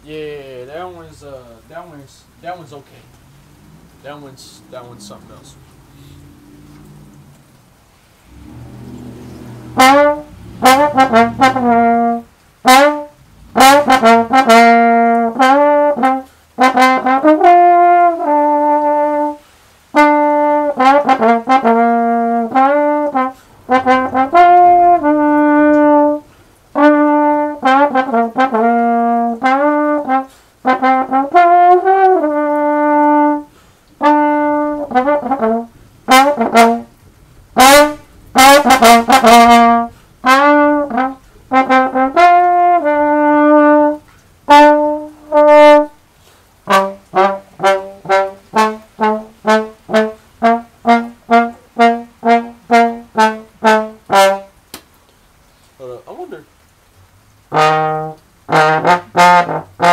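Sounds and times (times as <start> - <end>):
trombone melody: 3.8 - 54.7, 57.4 - 59.9.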